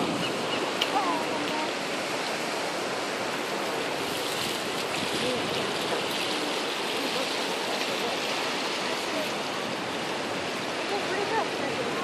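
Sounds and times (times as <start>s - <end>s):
surf splashing against rocks: 0.0s - 12.0s.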